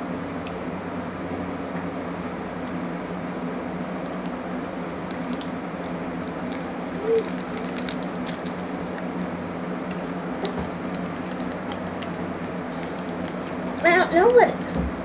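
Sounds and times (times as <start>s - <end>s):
steady background hum: 0.0s - 15.0s
plastic wrapper crinkling: 5.0s - 9.2s, 9.9s - 14.7s.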